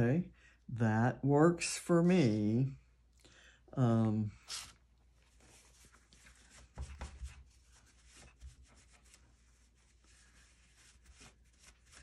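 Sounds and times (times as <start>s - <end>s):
rubbing on tabletop: 4.4s - 12.0s.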